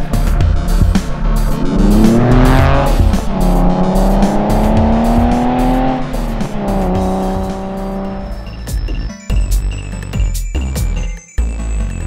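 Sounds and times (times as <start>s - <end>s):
music with drum beat: 0.0s - 12.0s
car engine accelerating: 0.7s - 9.1s.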